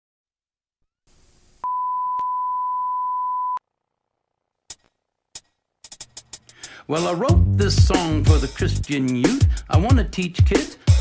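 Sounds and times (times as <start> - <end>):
electronic beep: 1.6 - 3.6.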